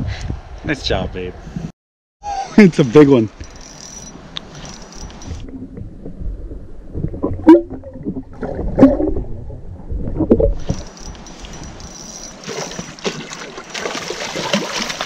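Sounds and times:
underwater thuds and gurgles: 5.4 - 11.2
water splashing at surface: 10.2 - 15.0.

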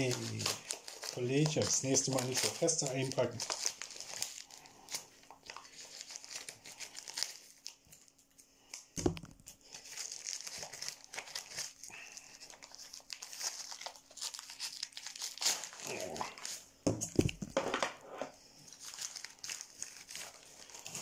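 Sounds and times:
packing paper crinkling and tearing: 0.0 - 17.6, 18.5 - 21.0.

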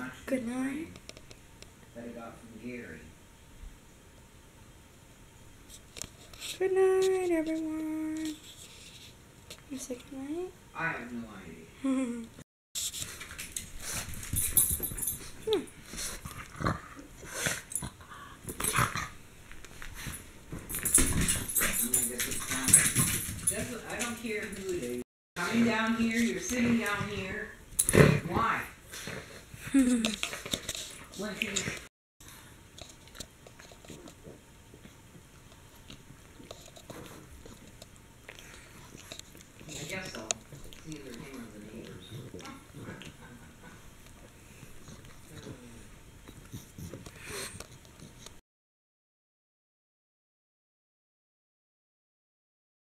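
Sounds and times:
dog chewing a toy: 32.8 - 48.3
dog snuffing: 44.2 - 48.3.

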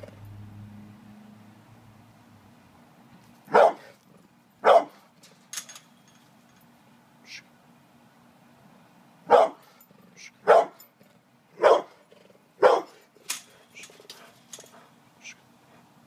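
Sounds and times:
dog barking: 3.5 - 4.0, 4.6 - 5.0, 9.3 - 9.6, 10.4 - 10.8, 11.6 - 12.0, 12.6 - 13.0.

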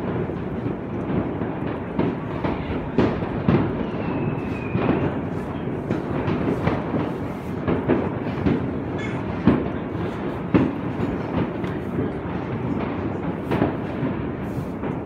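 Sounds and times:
fireworks crackling and banging: 0.0 - 15.0
whistling rocket: 2.5 - 7.6.

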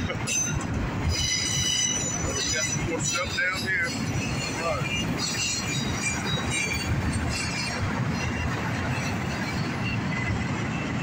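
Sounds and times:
steel wheels rumbling on rails: 0.0 - 11.0
high-pitched wheel squeals: 0.3 - 11.0.

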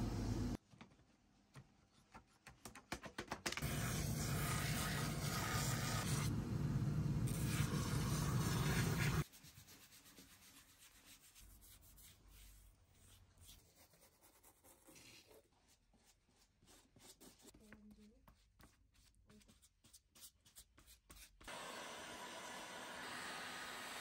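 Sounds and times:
bristle brush scratching: 3.6 - 6.3, 7.3 - 21.4.

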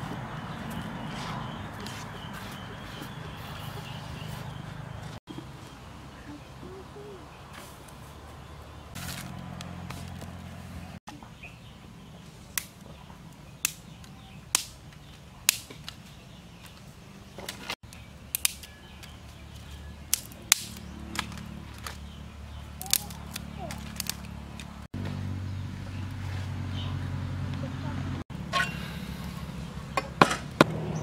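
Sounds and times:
dry twigs snapping: 9.0 - 10.4, 12.5 - 12.9, 13.6 - 16.8, 17.4 - 24.9.

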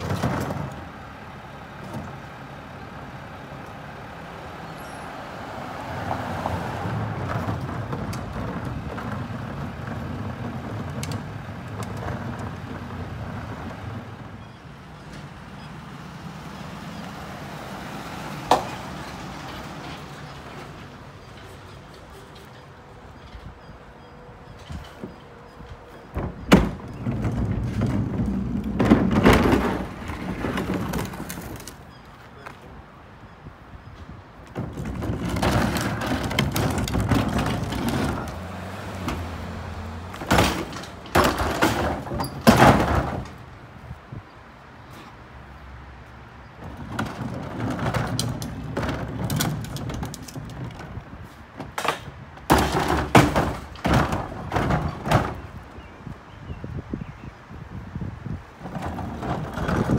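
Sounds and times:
plastic cart wheels rumbling: 0.0 - 1.1, 6.1 - 15.3, 26.0 - 31.9, 34.4 - 43.5, 46.6 - 56.0, 58.2 - 59.9
carts banging on metal trailer: 0.0 - 3.1, 6.0 - 32.5, 33.4 - 43.8, 46.4 - 55.9, 58.3 - 59.9.

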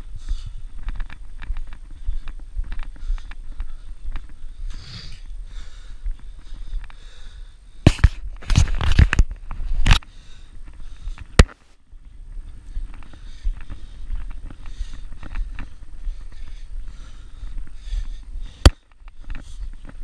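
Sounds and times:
hands and shoes on metal rungs: 0.0 - 7.2, 12.4 - 20.0
low wind rumble: 0.0 - 8.4, 9.3 - 20.0
sharp knock: 7.9 - 8.2.

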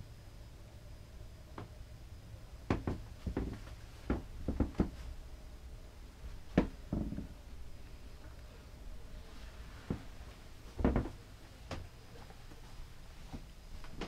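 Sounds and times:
low steady hum: 0.0 - 14.0
footsteps on wooden floor: 9.8 - 11.8.

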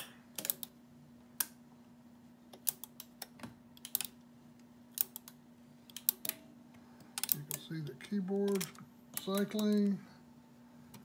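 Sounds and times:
faint steady hum: 0.0 - 11.0
teletype mechanism clicking: 2.6 - 4.2, 4.9 - 6.4, 7.2 - 9.9.

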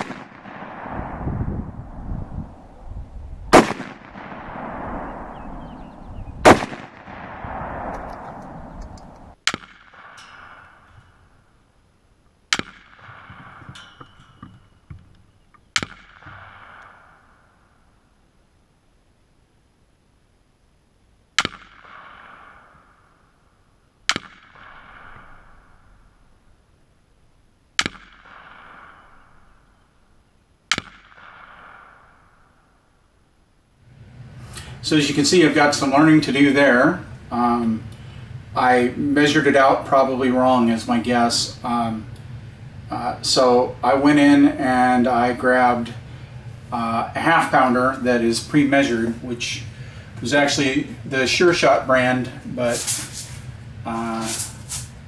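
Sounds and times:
rifle shots with echo: 0.0 - 2.7, 3.5 - 11.6, 12.5 - 14.1, 15.8 - 18.0, 21.4 - 26.4, 27.8 - 30.1, 30.7 - 33.0.

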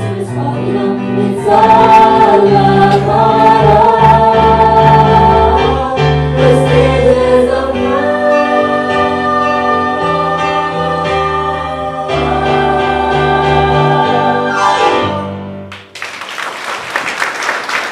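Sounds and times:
ensemble singing held chords: 0.0 - 15.6
audience applause: 15.7 - 17.9.

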